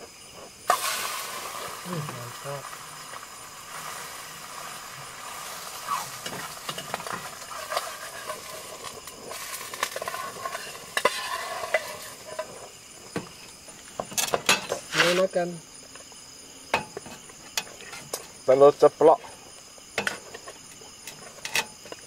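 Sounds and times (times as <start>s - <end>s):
egg sizzling in a pot: 0.0s - 18.4s
metal spatula scraping a pot: 6.0s - 12.7s, 21.0s - 21.8s.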